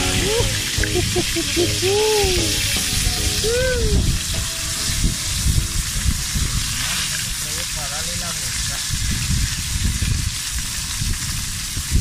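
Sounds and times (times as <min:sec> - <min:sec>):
fish sizzling in hot oil: 0:00.0 - 0:12.0
wood fire crackling: 0:00.0 - 0:12.0.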